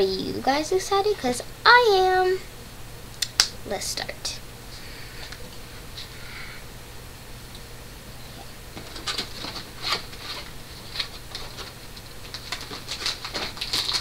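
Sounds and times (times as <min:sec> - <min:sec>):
cardboard box rustling and scraping: 0:08.8 - 0:11.8.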